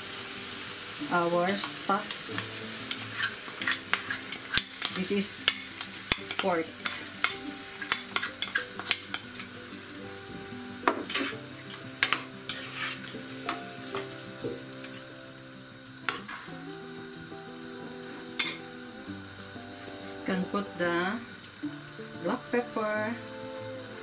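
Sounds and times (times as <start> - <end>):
frying pan sizzling: 0.0 - 24.0
metal spoon scraping and clinking: 2.9 - 9.6, 11.1 - 11.4, 12.0 - 13.2, 18.4 - 18.6.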